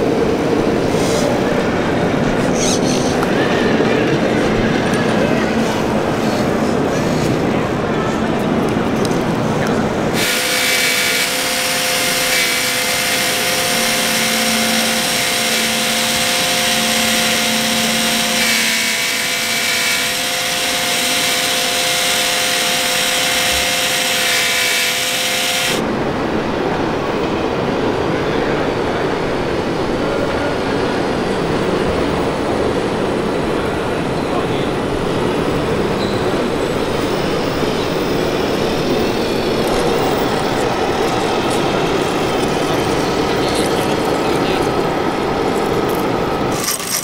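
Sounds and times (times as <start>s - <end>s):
small electric motors whining: 10.2s - 25.8s, 38.1s - 47.0s.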